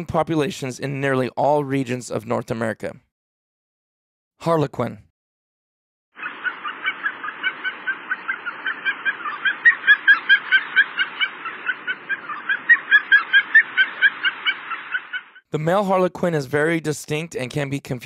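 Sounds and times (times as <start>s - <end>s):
ducks calling: 6.2s - 15.4s.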